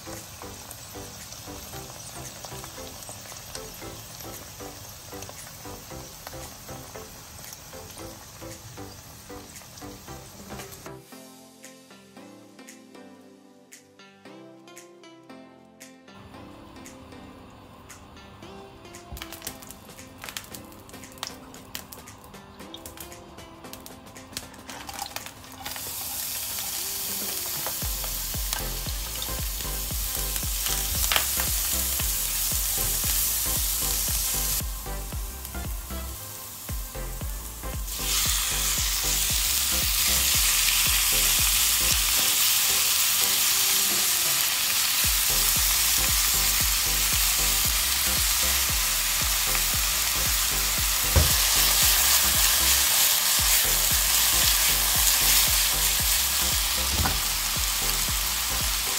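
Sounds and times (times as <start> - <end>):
food sizzling in hot oil: 0.0 - 12.0, 23.7 - 58.9.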